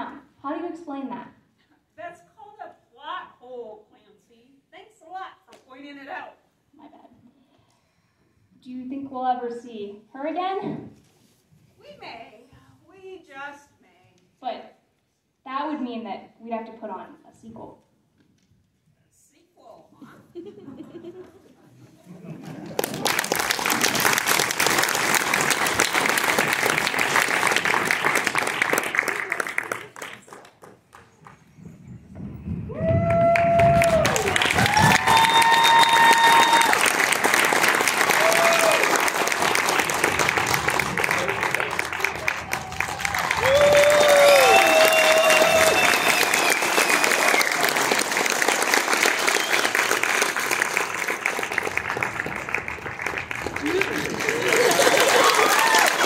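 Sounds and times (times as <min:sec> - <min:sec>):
audience applauding: 0:22.3 - 0:31.6, 0:32.7 - 0:56.0.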